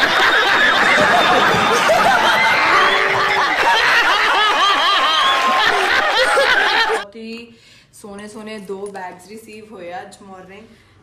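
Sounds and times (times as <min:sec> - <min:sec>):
crowd laughing: 0:00.0 - 0:07.0
people clapping: 0:00.0 - 0:07.0.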